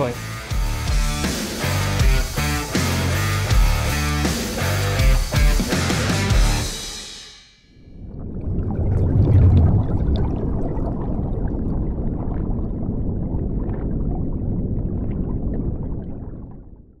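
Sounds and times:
underwater bubbles rushing: 7.9s - 17.0s.

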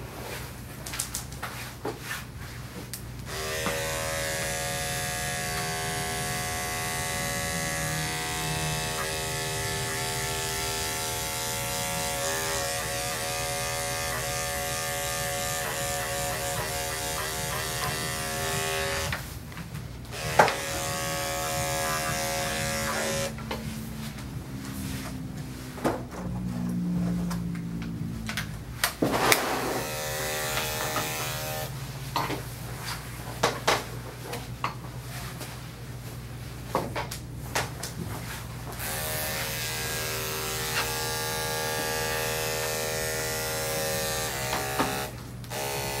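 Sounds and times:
electric clippers humming: 3.2s - 19.2s, 20.1s - 25.0s, 29.3s - 31.9s, 38.8s - 46.0s.

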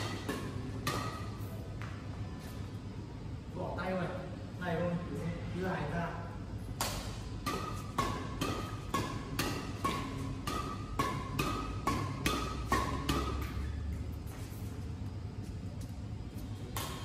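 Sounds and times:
shuttlecock hit with rackets: 0.0s - 2.0s, 6.8s - 13.8s, 16.7s - 17.0s.

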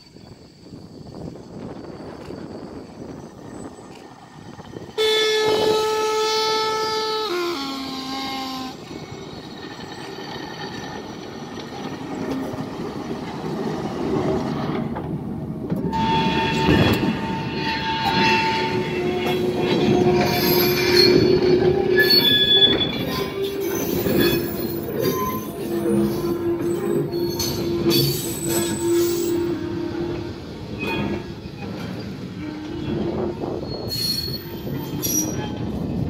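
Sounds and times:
train running noise: 0.0s - 36.0s
wheels squealing on track: 1.6s - 12.7s, 15.8s - 36.0s
two-tone locomotive horn: 5.0s - 9.0s, 15.8s - 31.4s, 32.4s - 33.8s.

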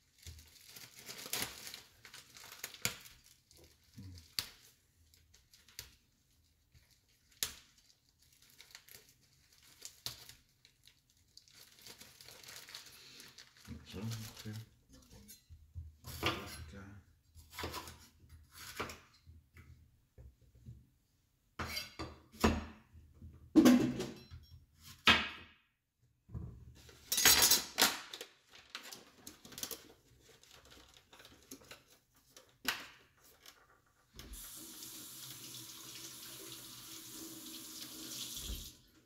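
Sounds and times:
kitchen tap running: 34.2s - 39.0s.

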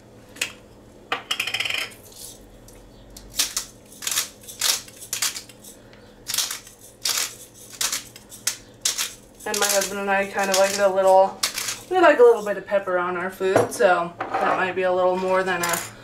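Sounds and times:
pepper grinder crunching: 2.0s - 12.6s.

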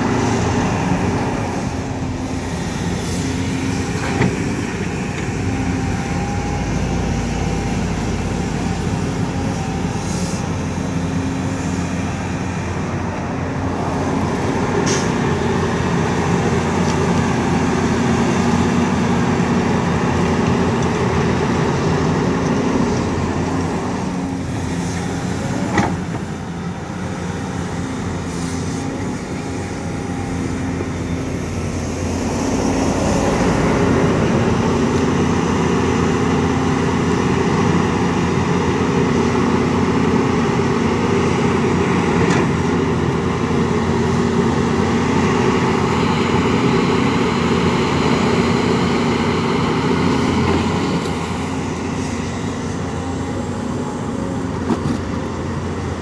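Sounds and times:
excavator engine and hydraulics: 0.0s - 56.0s.

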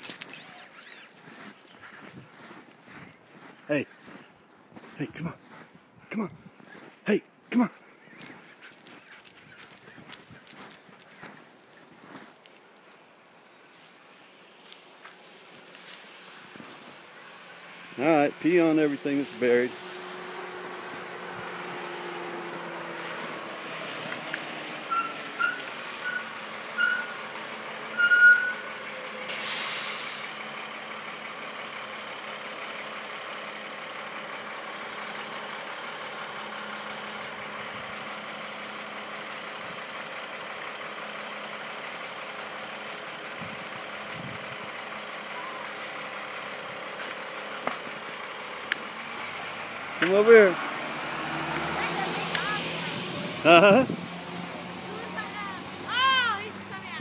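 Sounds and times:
vehicle engine running: 0.0s - 29.2s, 30.0s - 57.0s
short high chirps: 24.8s - 29.2s
loud hissing air: 29.3s - 30.3s.

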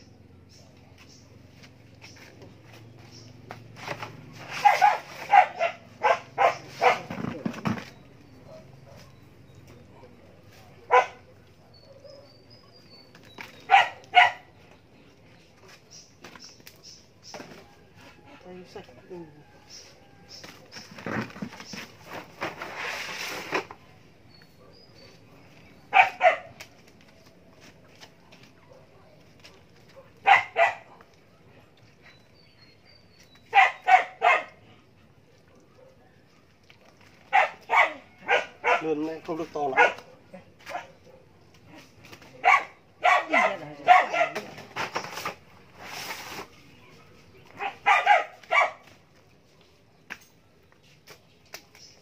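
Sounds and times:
dog barking: 4.6s - 7.2s, 8.4s - 9.2s, 10.8s - 12.3s, 13.7s - 14.5s, 25.9s - 26.6s, 29.9s - 31.0s, 33.5s - 34.6s, 35.5s - 36.1s, 37.3s - 39.0s, 39.7s - 41.3s, 42.4s - 44.5s, 47.6s - 48.9s.

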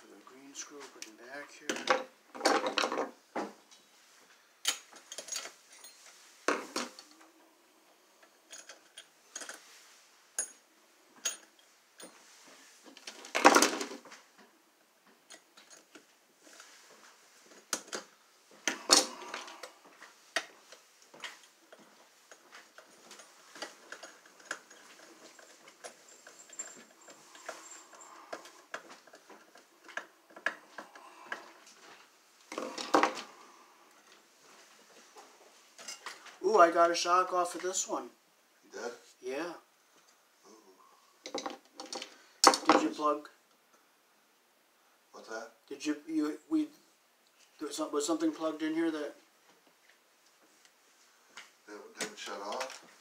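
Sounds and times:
metallic clicks and rattles: 21.2s - 30.6s.

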